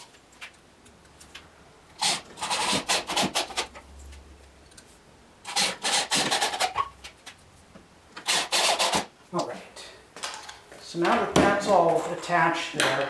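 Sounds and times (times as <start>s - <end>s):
electric drill into plywood: 5.5s - 6.6s, 8.2s - 9.1s.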